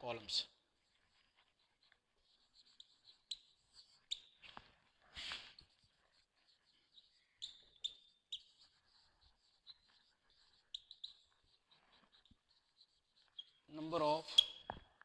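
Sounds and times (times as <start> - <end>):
marker squeaking on whiteboard: 0.0 - 15.0.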